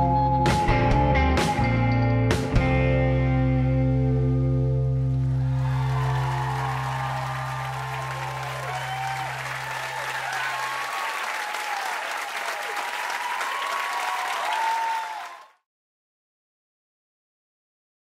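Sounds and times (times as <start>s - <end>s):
whistles: 0.0s - 1.8s
held guitar and bass note: 0.0s - 5.6s
audience applauding and cheering: 5.2s - 15.6s.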